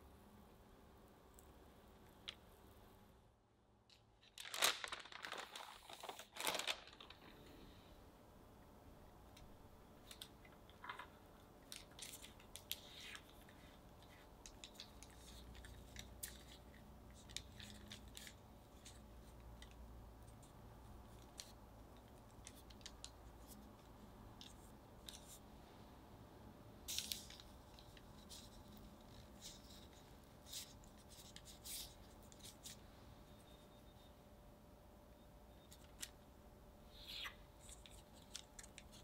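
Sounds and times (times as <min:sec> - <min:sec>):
paper rustling: 0:04.2 - 0:07.5.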